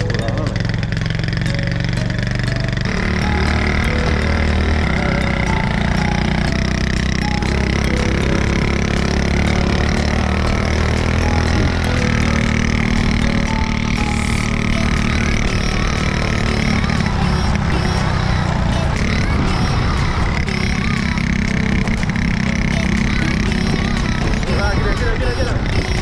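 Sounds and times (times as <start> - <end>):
motorcycle engine running: 0.0 - 26.0
rushing wind noise: 23.3 - 26.0.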